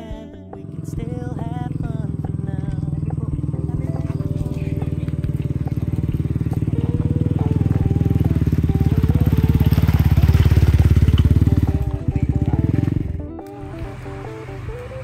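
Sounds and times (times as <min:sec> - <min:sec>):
small motorcycle engine passing: 0:00.6 - 0:15.0.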